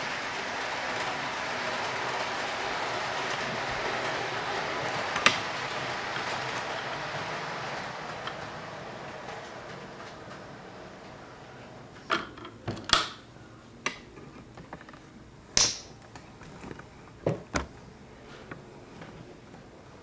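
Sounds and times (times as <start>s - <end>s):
model train running: 0.0s - 11.9s.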